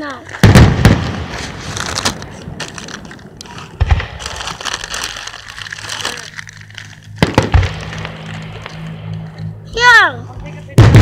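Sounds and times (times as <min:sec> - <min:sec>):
fireworks crackling: 0:00.0 - 0:11.0
firework bangs: 0:00.3 - 0:04.9, 0:07.1 - 0:09.3, 0:10.8 - 0:11.0.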